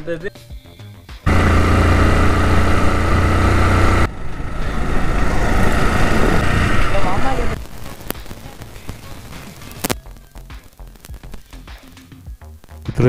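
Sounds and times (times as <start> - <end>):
motorcycle engine running: 1.2 - 7.6
rush of road noise: 1.3 - 9.9.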